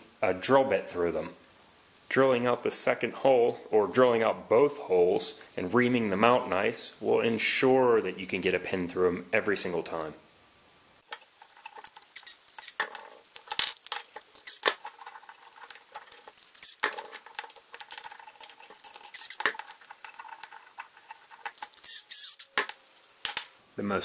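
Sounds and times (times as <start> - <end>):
plywood pieces clacking and rattling: 11.1 - 21.8.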